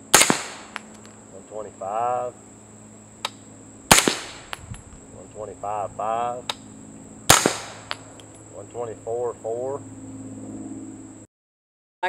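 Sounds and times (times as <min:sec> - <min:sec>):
suppressed gunshots: 0:00.1 - 0:01.1, 0:03.2 - 0:04.8, 0:07.2 - 0:08.2.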